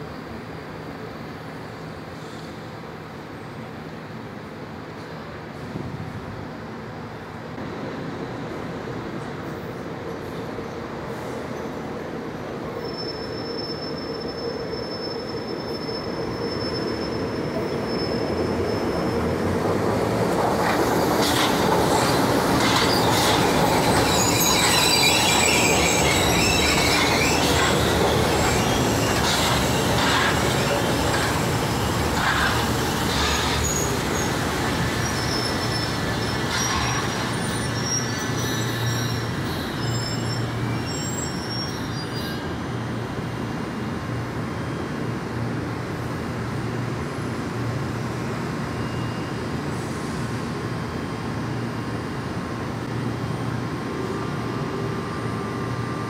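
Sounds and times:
train rolling on elevated track: 0.0s - 56.0s
sharp clacks of train wheels: 19.7s - 39.3s
high-pitched wheel squeals: 22.0s - 34.4s, 35.0s - 42.6s.

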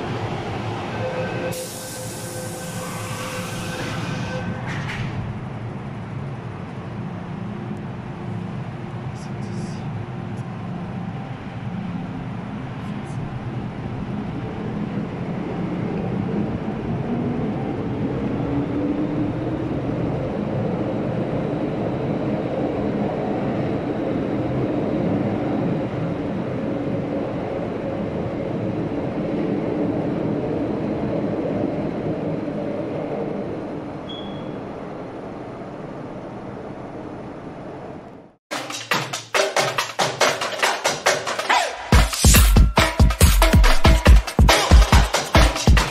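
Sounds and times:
electric train pulling out: 0.0s - 5.4s.

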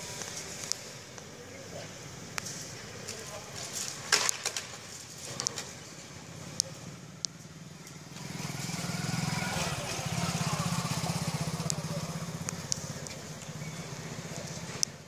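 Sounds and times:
small engine running: 6.3s - 14.9s.

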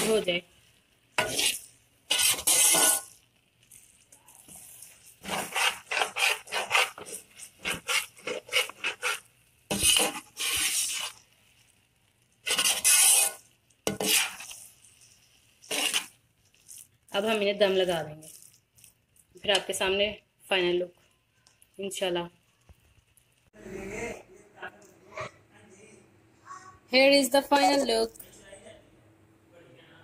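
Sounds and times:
spatula scraping rice in steel pot: 1.2s - 3.2s, 3.8s - 11.3s, 12.4s - 16.2s.

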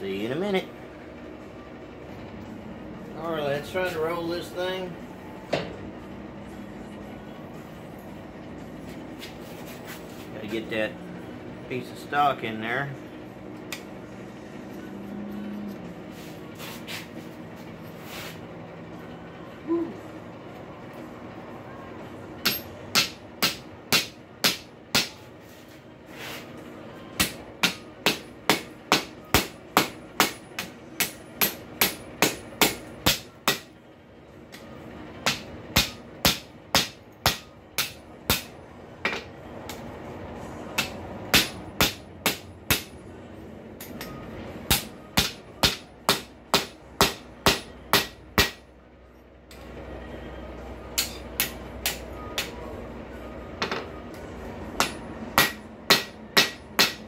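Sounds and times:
steady background hum: 0.0s - 57.0s
hammer striking metal on anvil: 22.4s - 25.2s, 27.2s - 33.7s, 35.2s - 39.8s, 40.8s - 43.0s, 43.8s - 48.7s, 50.9s - 52.6s, 54.8s - 57.0s.

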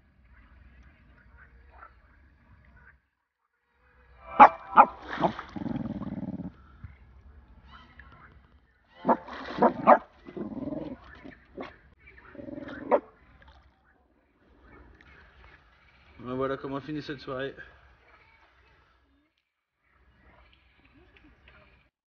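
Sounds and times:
dog barking: 4.4s - 5.4s, 9.0s - 10.1s, 12.6s - 13.1s
dog whining: 9.1s - 11.0s, 12.4s - 13.0s.

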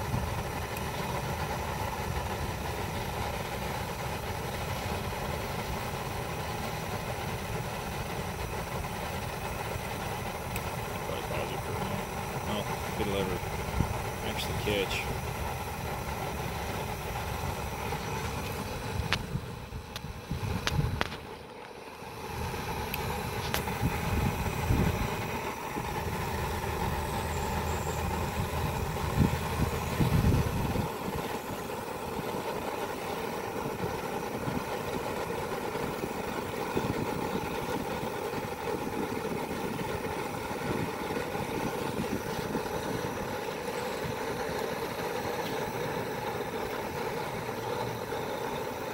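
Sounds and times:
gas burner roaring: 0.0s - 48.9s
wind buffeting microphone: 17.8s - 21.3s, 23.2s - 26.6s, 28.0s - 31.6s.

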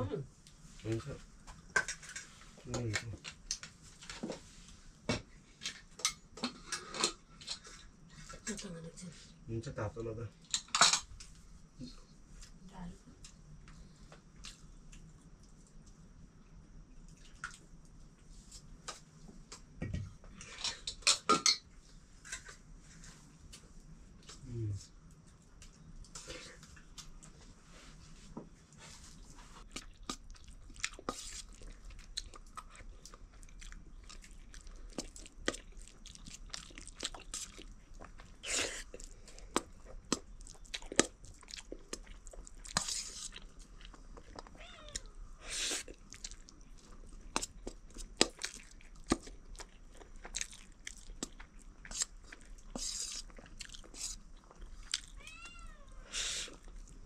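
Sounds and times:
person chewing food: 29.0s - 55.2s, 55.9s - 57.0s
cat meowing faintly: 44.5s - 45.2s, 55.1s - 56.1s.

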